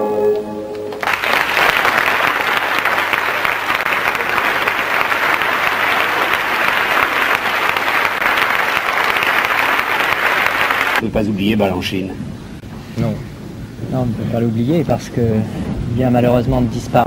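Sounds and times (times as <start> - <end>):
audience applause: 0.9 - 11.0.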